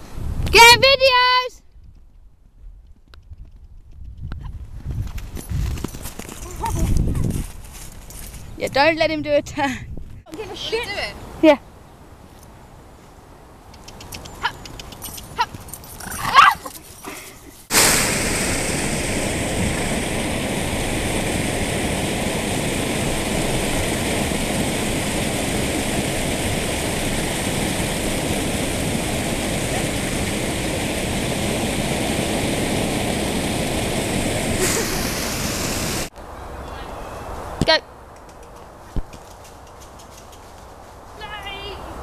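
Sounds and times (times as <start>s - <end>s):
water rushing over stone weir: 17.7s - 36.1s.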